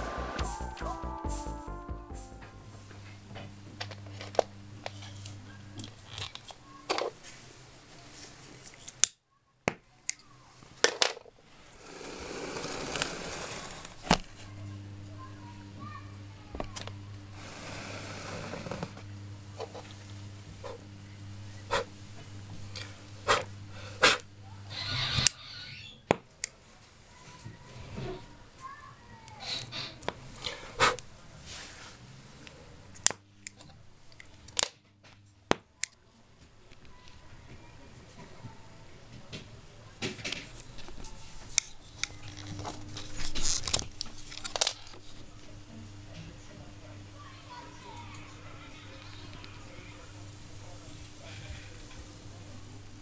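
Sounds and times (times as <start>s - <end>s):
short rising hiss: 0.0s - 1.5s
steady low hum: 0.0s - 6.2s, 11.8s - 25.2s
faint steady hum: 0.0s - 53.0s.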